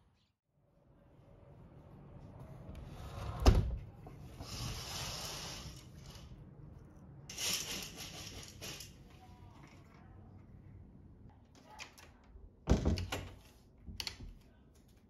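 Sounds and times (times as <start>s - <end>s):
curtain sliding rustle: 4.3s - 6.4s.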